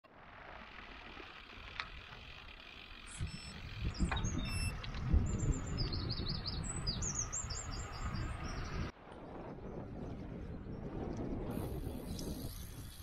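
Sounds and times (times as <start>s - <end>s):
wind and road rumble: 0.0s - 13.0s
small birds chirping: 3.0s - 8.9s.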